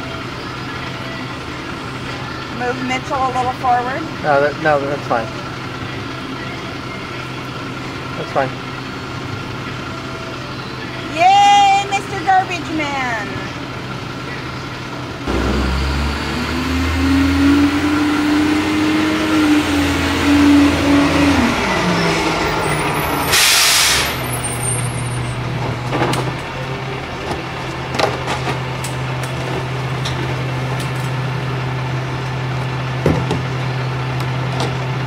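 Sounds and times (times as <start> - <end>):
truck diesel engine: 0.0 - 35.0
air brake hiss: 23.2 - 24.3.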